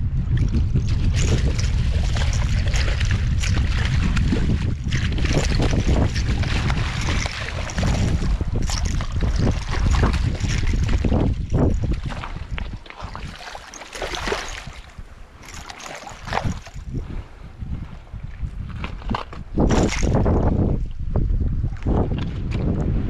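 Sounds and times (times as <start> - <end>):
wind buffeting microphone: 0.0 - 23.0
fish splashing at water surface: 0.9 - 16.8.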